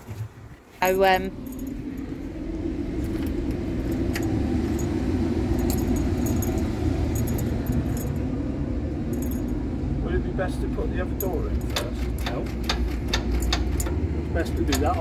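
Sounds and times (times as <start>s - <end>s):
low rumble: 0.8s - 15.0s
metallic clinks of bolts and tool: 3.9s - 8.2s, 9.1s - 9.5s, 11.2s - 14.0s.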